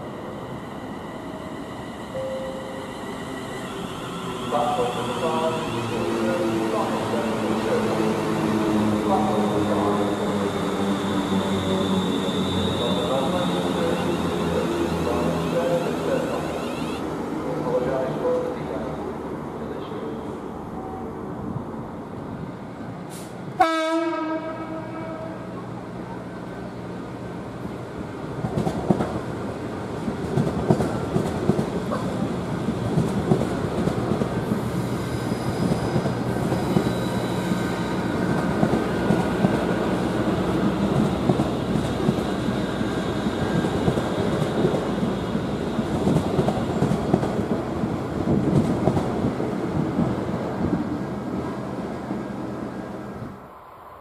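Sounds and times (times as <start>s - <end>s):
train wheels rumbling on track: 22.4s - 53.3s
train horn blast: 23.6s - 25.4s.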